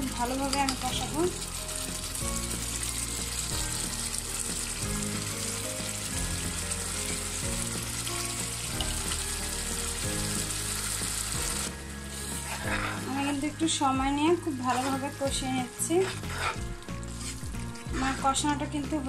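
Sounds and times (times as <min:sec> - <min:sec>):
paste sizzling in hot oil: 0:00.0 - 0:19.0
soft background music: 0:00.0 - 0:19.0.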